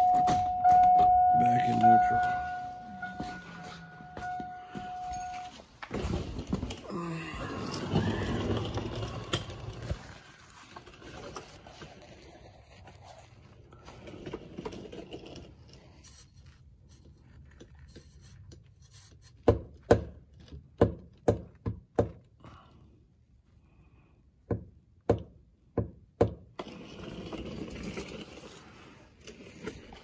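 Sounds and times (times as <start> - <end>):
rustling and handling noise: 1.6 - 20.7.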